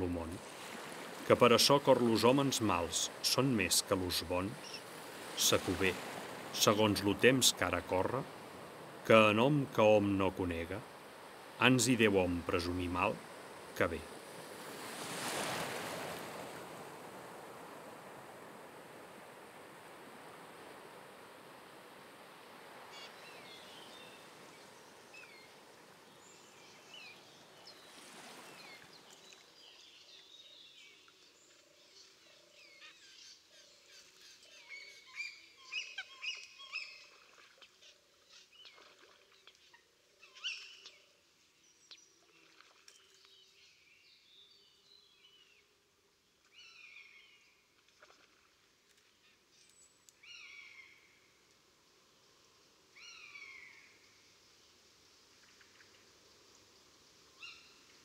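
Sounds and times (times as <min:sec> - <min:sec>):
birds chirping: 0:01.3 - 0:08.2, 0:22.8 - 0:45.7.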